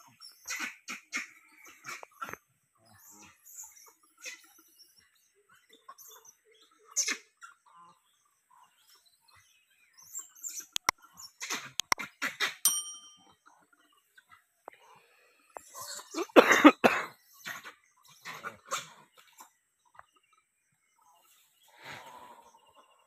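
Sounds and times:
monkey squeaks and calls: 10.1s - 12.1s
sharp clicks: 11.8s - 12.0s
short ringing ding: 12.7s - 13.3s.

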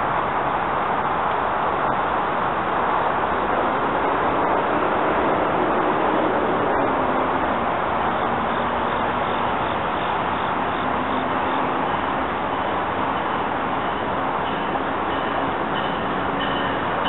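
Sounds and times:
electric train approaching: 0.0s - 17.0s
high-pitched ringing: 11.5s - 17.0s.

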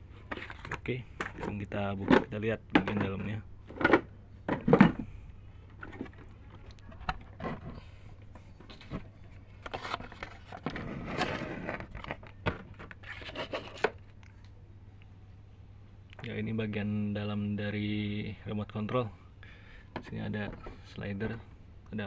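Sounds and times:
wooden box being handled: 0.2s - 14.0s.

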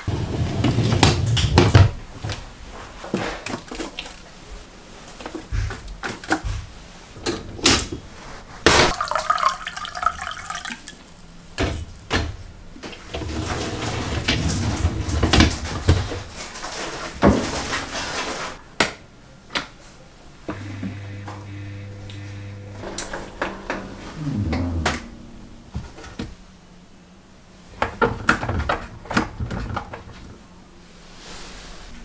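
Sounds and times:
dishwasher racks clattering: 0.0s - 2.3s, 11.6s - 18.6s, 22.8s - 26.3s
rack rolling on runners: 0.0s - 2.3s
liquid poured into a glass: 8.9s - 10.9s.

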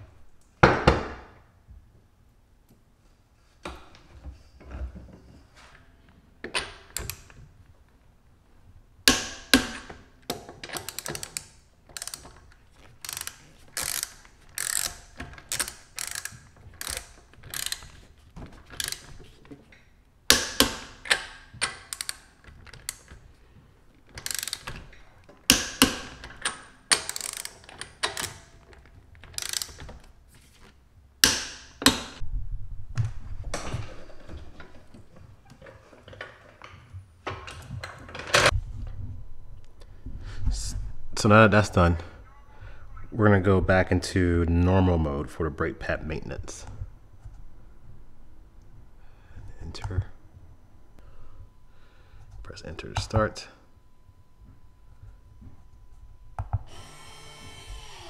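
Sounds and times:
ratchet wrench clicking: 10.8s - 12.3s, 13.0s - 17.9s, 18.8s - 19.0s, 21.9s - 22.2s, 24.2s - 24.7s, 26.9s - 27.6s, 29.4s - 29.8s.

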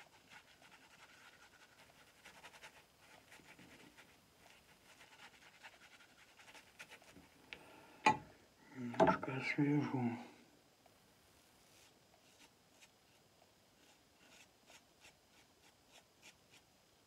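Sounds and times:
razor scratching stubble: 13.8s - 16.6s.

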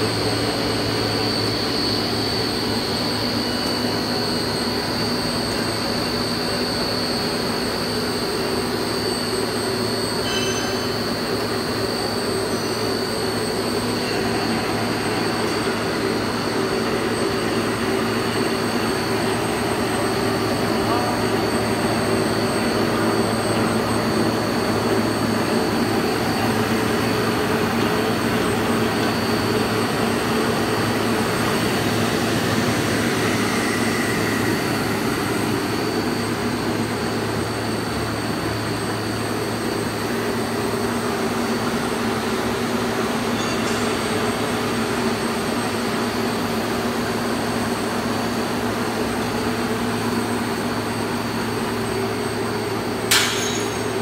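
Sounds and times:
high-pitched motor whine: 0.0s - 54.0s
machine hum: 0.0s - 54.0s.

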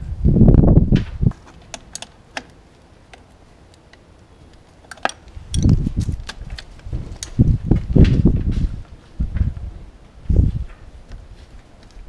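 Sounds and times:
low rumbling handling noise: 0.0s - 12.0s
wrench clicking on metal: 4.9s - 7.4s.

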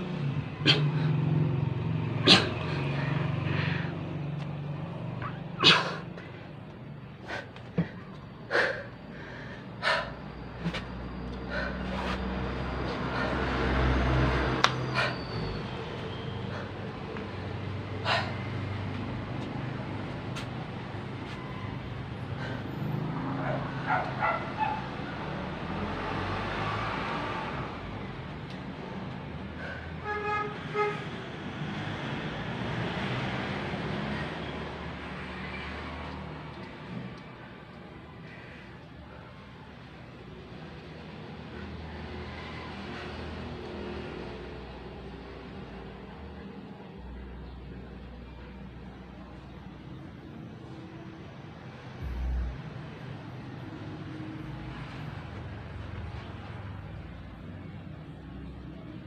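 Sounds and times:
traffic rumble: 0.0s - 59.0s
dog barking: 23.4s - 24.9s
low steady hum: 52.0s - 53.0s.

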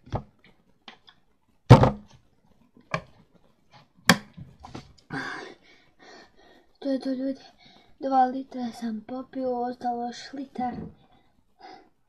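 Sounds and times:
knocks and thumps: 1.7s - 2.2s.

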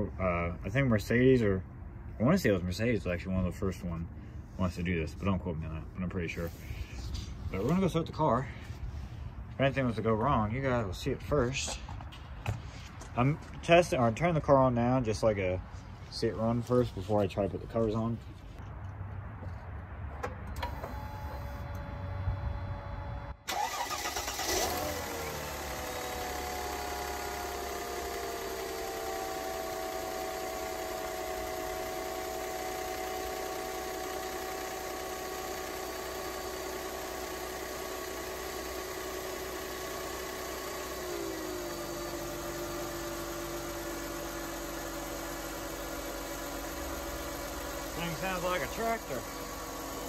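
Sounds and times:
car engine starting and idling: 20.2s - 50.0s.

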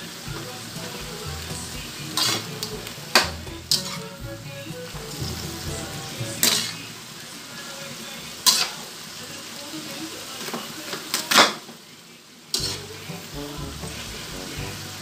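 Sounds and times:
food sizzling in a wok: 0.0s - 15.0s
metal spatula scraping a pan: 1.4s - 7.0s, 8.4s - 8.8s, 12.5s - 14.2s.

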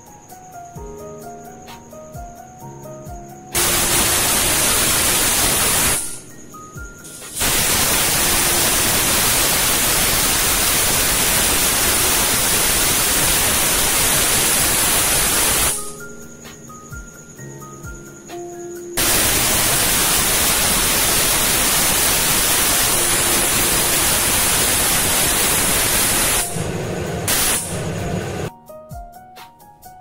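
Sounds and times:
background music melody: 0.0s - 3.6s, 6.0s - 7.4s, 15.8s - 19.0s, 26.5s - 30.0s
pressure cooker whistle hissing: 3.5s - 16.0s, 19.0s - 28.5s.

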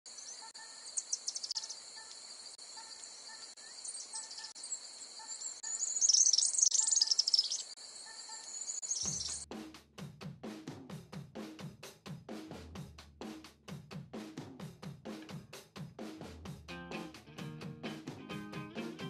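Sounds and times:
birds chirping: 0.1s - 9.4s
insect chirring: 0.1s - 9.4s.

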